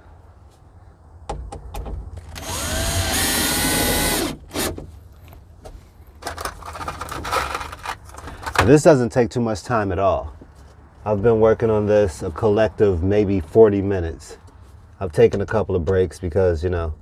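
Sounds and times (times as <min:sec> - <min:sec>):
cordless drill motor whine: 0:02.4 - 0:04.7.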